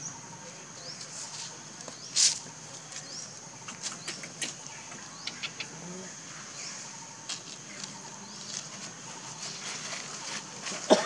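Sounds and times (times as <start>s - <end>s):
dry leaves crackling: 7.2s - 11.0s.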